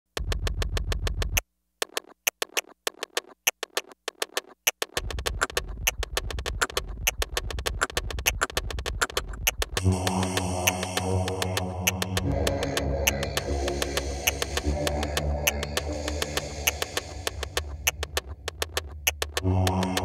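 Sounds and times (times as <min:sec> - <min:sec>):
rapid snare drum strokes: 0:04.7 - 0:20.0
sustained synthesizer chord: 0:09.8 - 0:17.9, 0:19.4 - 0:20.0
deep bass: 0:09.8 - 0:20.0.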